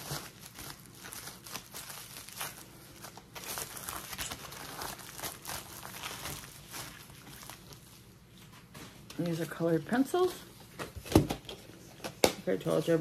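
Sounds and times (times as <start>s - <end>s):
packaging crinkling and rustling: 0.0s - 13.0s.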